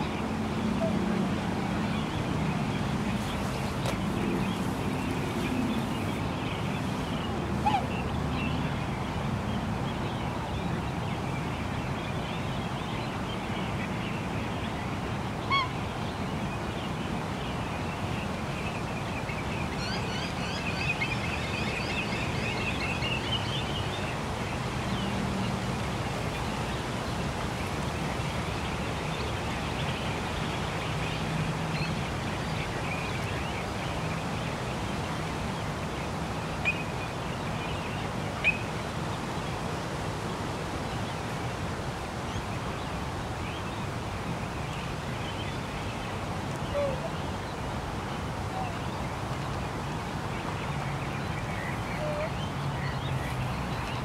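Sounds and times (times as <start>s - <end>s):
distant city traffic hum: 0.0s - 10.6s.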